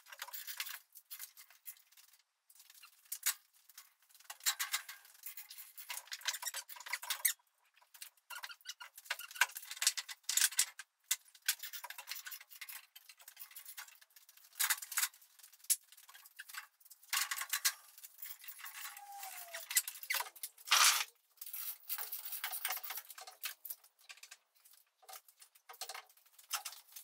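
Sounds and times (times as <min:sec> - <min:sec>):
metal parts and tools clinking: 0:11.5 - 0:27.0.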